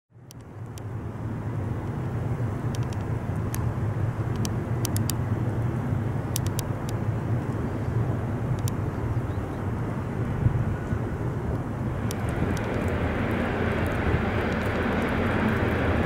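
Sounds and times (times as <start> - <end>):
diesel locomotive engine drone: 0.1 - 16.0
faint sharp high ticks: 0.2 - 0.9, 2.7 - 3.7, 4.3 - 5.2, 6.3 - 7.6, 8.5 - 8.8, 10.8 - 15.8.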